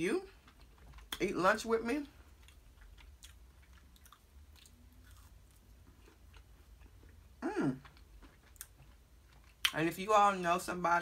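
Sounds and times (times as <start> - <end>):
person chewing: 0.3 - 1.3, 2.1 - 9.8.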